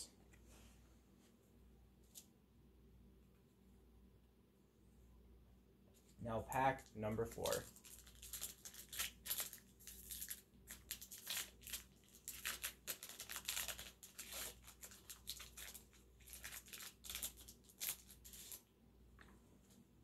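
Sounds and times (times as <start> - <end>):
card pack wrapper crinkling: 6.8 - 18.7.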